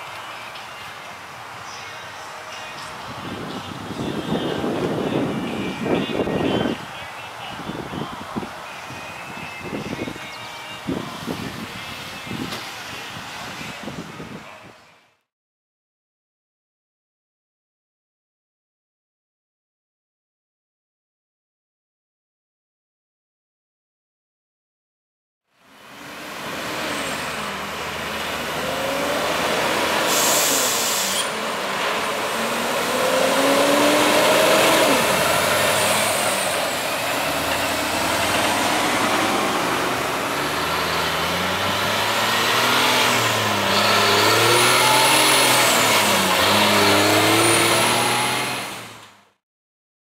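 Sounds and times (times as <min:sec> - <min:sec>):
tow truck diesel engines accelerating: 0:00.0 - 0:13.9, 0:25.6 - 0:49.3
air hiss: 0:30.0 - 0:31.4.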